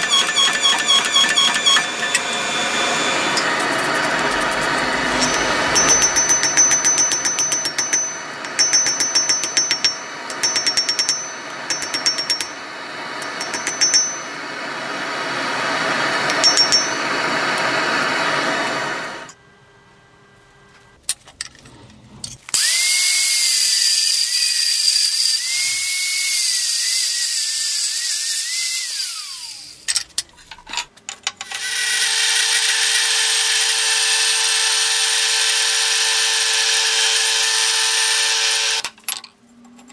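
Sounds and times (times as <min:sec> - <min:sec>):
hammer ringing on anvil: 0:00.0 - 0:14.5, 0:16.2 - 0:17.2
milling machine cutter whine: 0:00.0 - 0:19.4, 0:22.5 - 0:29.8
power tool running on steel: 0:00.0 - 0:19.4, 0:22.5 - 0:29.9, 0:31.5 - 0:38.9.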